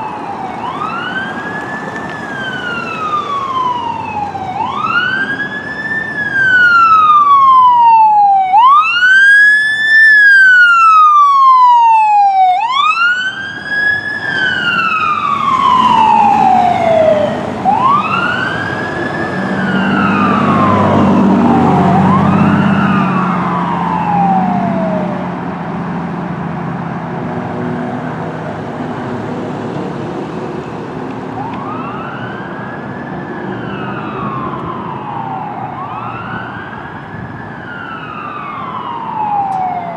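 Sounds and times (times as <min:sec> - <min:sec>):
electronic siren wailing: 0:00.0 - 0:25.5, 0:31.3 - 0:39.9
faint siren wailing: 0:00.0 - 0:26.8, 0:31.3 - 0:39.9
heavy vehicle engine rumbling: 0:13.3 - 0:39.9.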